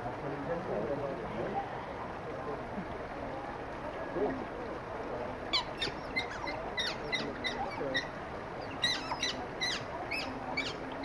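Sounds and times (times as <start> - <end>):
otters chirping: 5.5 - 11.0.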